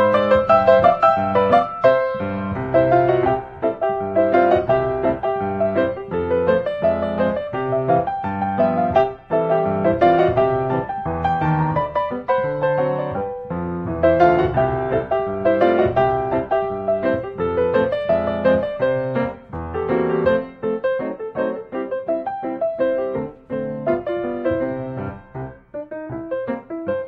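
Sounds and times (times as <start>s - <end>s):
piano music: 0.0s - 27.0s.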